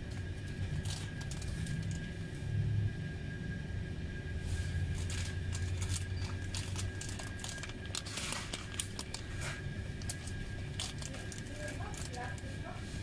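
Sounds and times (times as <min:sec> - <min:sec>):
low steady hum: 0:00.0 - 0:13.0
plastic packets crinkling: 0:00.2 - 0:02.2, 0:04.9 - 0:12.6.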